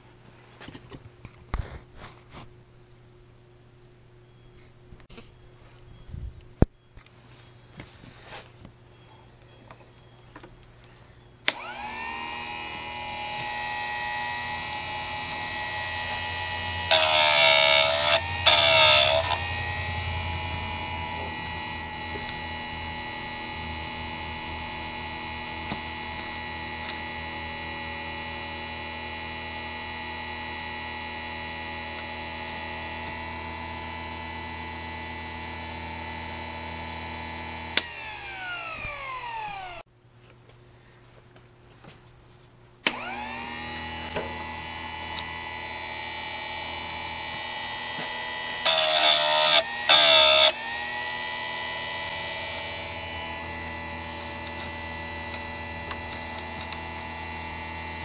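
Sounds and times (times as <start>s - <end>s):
sharpener motor whine: 11.5s - 39.9s, 42.8s - 58.0s
harsh grinding on metal: 12.7s - 28.7s, 47.1s - 58.0s.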